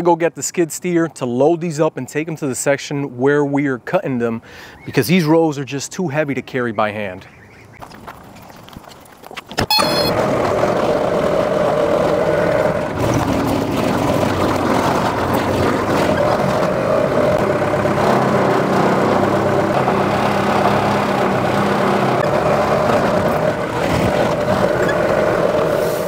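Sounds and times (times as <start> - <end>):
loader engine running: 9.7 - 26.0.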